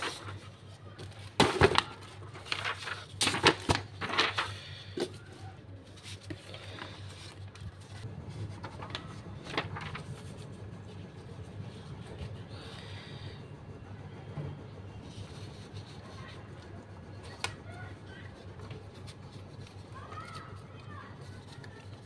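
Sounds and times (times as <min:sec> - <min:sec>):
paper rustling: 0:00.0 - 0:12.9, 0:15.0 - 0:22.0.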